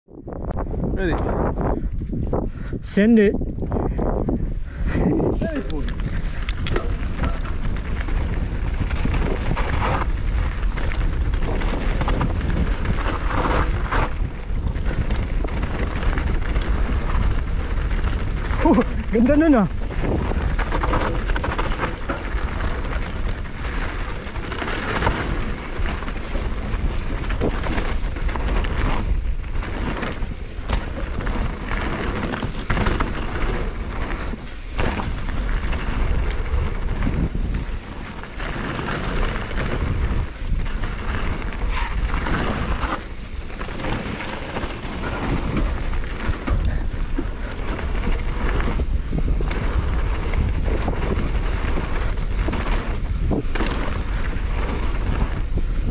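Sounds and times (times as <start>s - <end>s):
wind buffeting microphone: 0.1s - 55.9s
bike rattling over rocks: 5.0s - 55.9s
tyres crunching on gravel: 5.6s - 55.9s.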